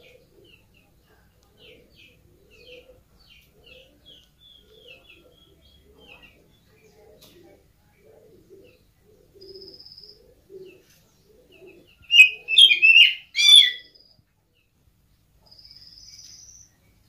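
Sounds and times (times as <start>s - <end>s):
bird chirping: 11.6s - 14.6s.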